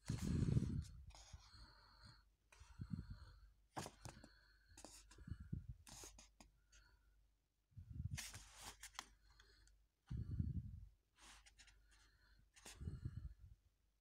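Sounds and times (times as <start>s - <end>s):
comic book pages rustling: 8.2s - 9.2s.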